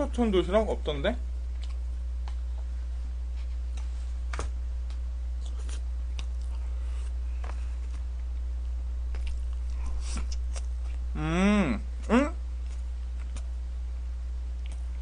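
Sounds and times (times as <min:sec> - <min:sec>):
steady low hum: 0:00.0 - 0:15.0
person chewing: 0:01.5 - 0:02.7, 0:05.4 - 0:11.1, 0:11.9 - 0:13.6, 0:14.5 - 0:15.0.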